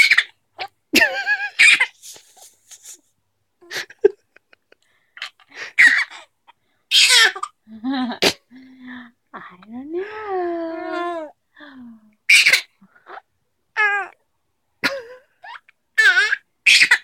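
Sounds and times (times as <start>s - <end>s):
adult laughing: 1.0s - 3.0s, 3.6s - 4.9s
baby giggling and squealing: 1.0s - 3.0s, 5.2s - 6.2s.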